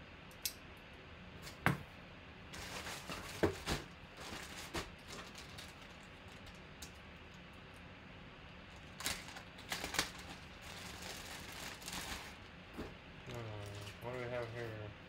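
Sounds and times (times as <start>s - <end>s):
plastic bag crinkling: 2.6s - 6.6s, 8.8s - 12.5s.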